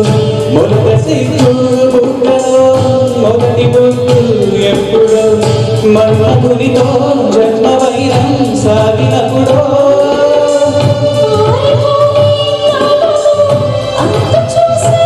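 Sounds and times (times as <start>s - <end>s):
man singing: 0.0s - 11.4s
backing music with steady beat: 0.0s - 15.0s
woman singing: 9.3s - 15.0s.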